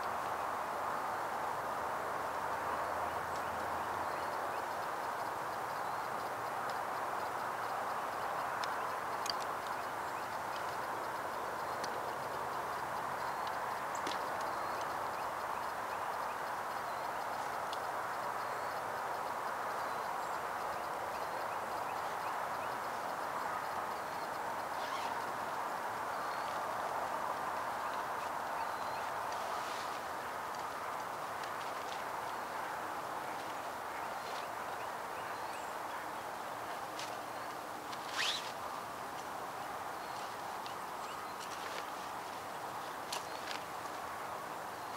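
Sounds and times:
outdoor background noise: 0.0 - 44.9
faint high bird chirps: 38.1 - 38.5.

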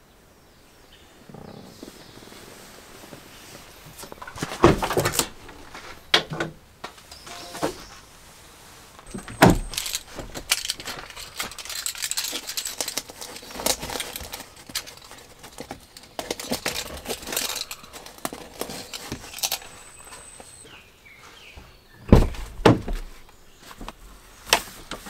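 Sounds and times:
metal carabiners jingling: 9.1 - 20.6.

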